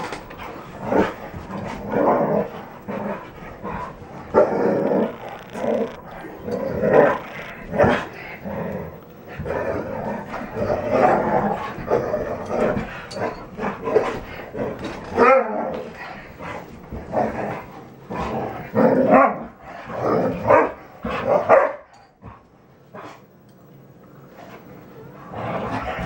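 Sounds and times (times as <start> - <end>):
dogs growling and barking: 0.0 - 23.4, 24.4 - 26.0.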